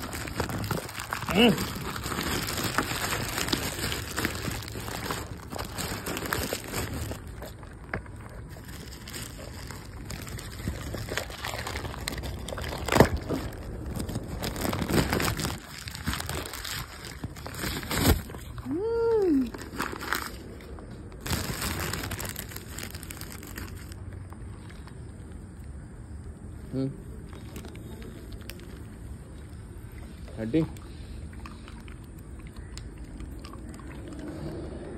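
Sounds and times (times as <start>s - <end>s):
plastic packaging crinkling: 0.0s - 24.9s, 27.2s - 29.4s.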